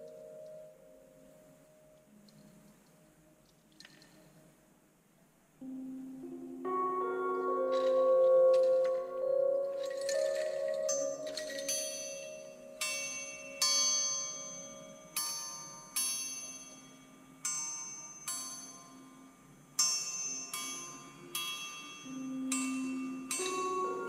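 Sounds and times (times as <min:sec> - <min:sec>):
soft low tone: 0:05.6 - 0:11.6
metal chimes ringing: 0:07.6 - 0:24.0.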